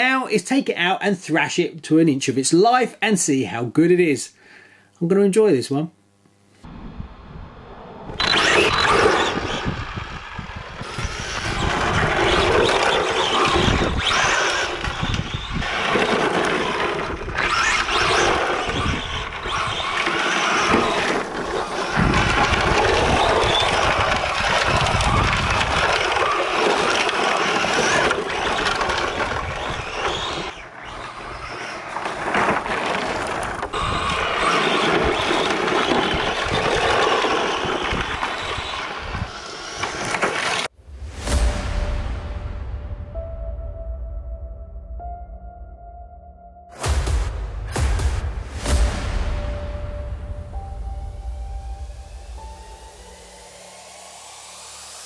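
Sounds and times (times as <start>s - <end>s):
electric motor whining: 8.1s - 40.7s
tyres scraping over gravel: 8.2s - 40.7s.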